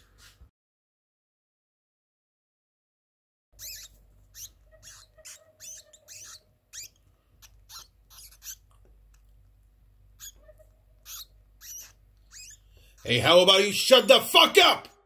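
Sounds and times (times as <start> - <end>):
rodent squeaking: 3.6 - 9.2, 10.0 - 13.3.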